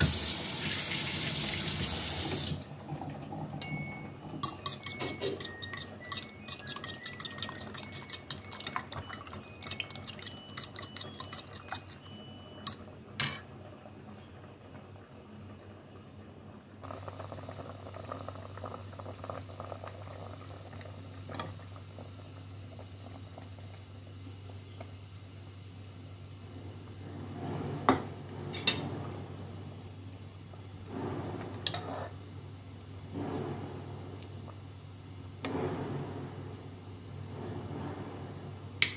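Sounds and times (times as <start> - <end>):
metal spoon clinking pot: 4.4 - 12.0
broth bubbling in pot: 16.7 - 34.6.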